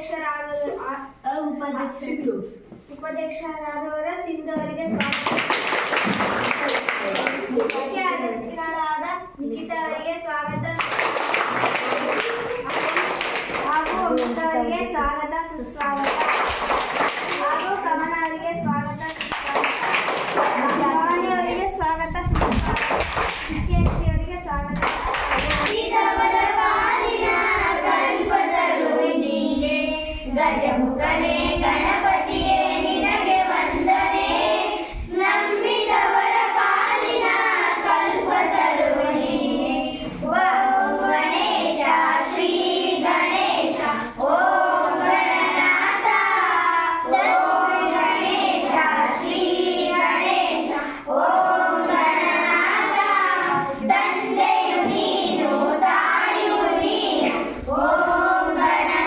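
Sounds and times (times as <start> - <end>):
girls singing together: 10.4 - 59.0.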